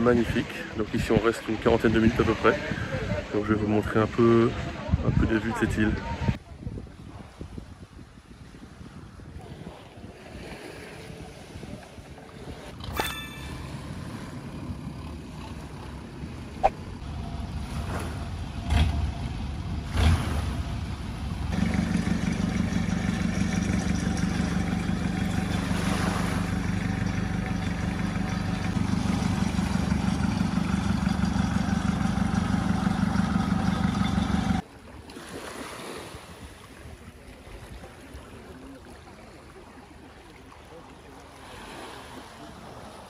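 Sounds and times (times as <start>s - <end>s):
water: 0.0s - 43.0s
wind: 0.0s - 43.0s
boat engine humming: 9.1s - 35.1s, 36.3s - 43.0s.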